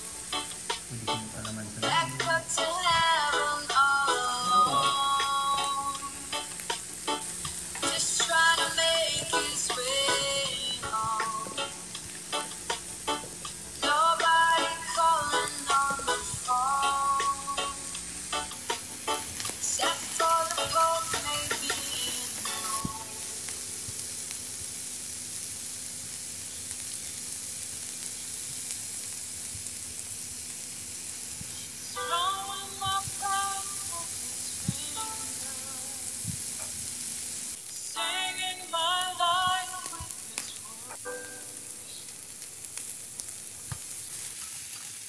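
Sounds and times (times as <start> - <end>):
meat sizzling on grill pan: 0.0 - 45.0
person speaking: 0.9 - 3.1, 4.1 - 5.7.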